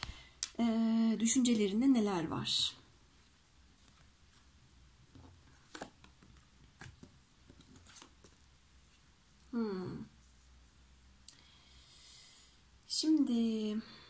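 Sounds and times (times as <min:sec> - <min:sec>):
low room hum: 0:00.0 - 0:14.0
cards clicking and scraping: 0:05.1 - 0:08.4.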